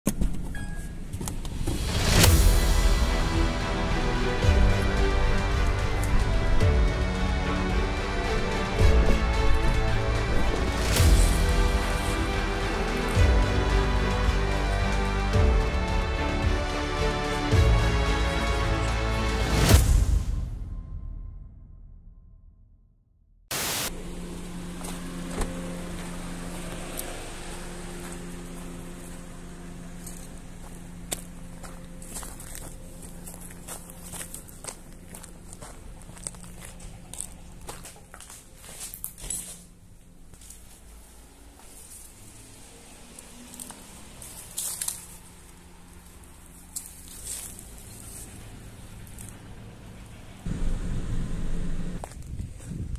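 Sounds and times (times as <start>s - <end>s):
music: 1.7s - 23.1s
steady hiss: 23.5s - 24.6s
low steady hum: 23.9s - 52.9s
footsteps crunching over rubble: 30.0s - 42.1s.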